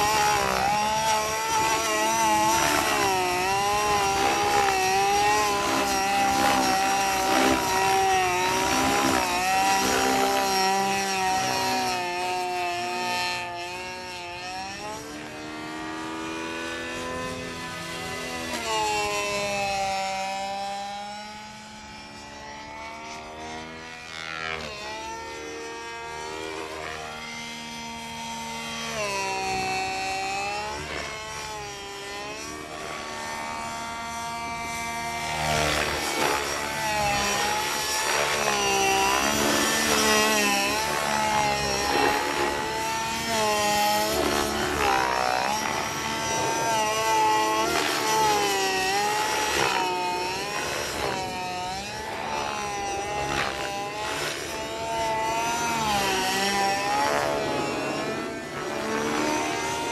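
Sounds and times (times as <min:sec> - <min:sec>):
model helicopter engine: 0:00.0 - 0:59.9
rotor blades: 0:00.0 - 0:59.9.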